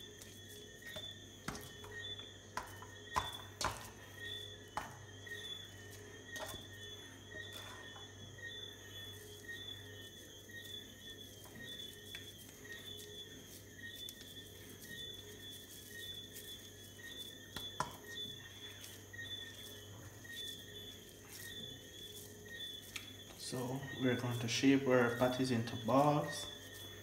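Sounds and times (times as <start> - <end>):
hands patting raw meat: 0.0 - 8.0, 10.6 - 23.4.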